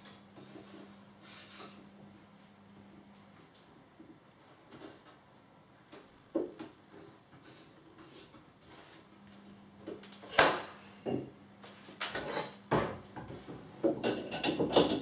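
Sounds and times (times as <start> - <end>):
wood and metal knocks and clatters: 12.2 - 15.0.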